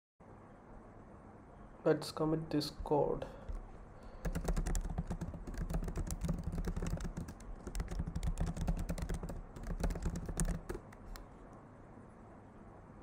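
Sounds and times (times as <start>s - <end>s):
typing on computer keyboard: 3.4s - 11.3s.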